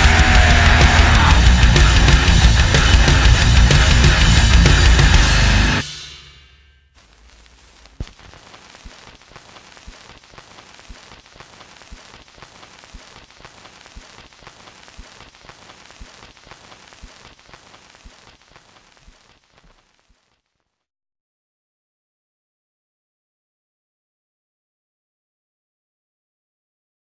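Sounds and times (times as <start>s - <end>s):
static hiss and crackle: 7.0s - 20.9s.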